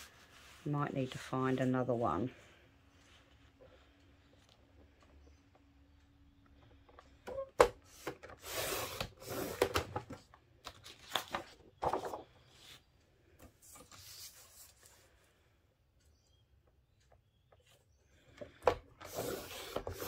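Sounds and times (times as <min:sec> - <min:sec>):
paper rustling: 0:10.6 - 0:12.8.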